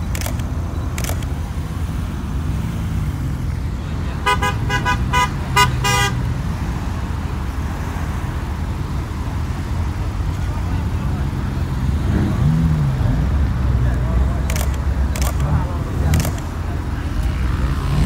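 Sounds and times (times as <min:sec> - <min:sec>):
low rumble of car engines: 0:00.0 - 0:18.0
car horn tooting: 0:04.2 - 0:06.3.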